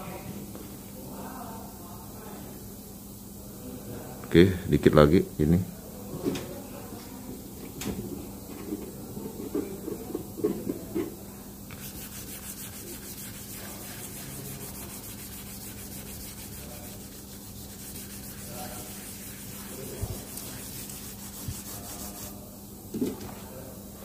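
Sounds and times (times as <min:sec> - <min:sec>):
sandpaper sanding a panel: 0:11.7 - 0:22.4.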